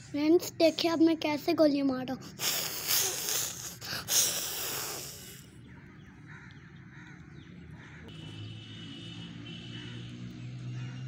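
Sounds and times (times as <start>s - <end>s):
crows cawing: 5.7s - 8.2s.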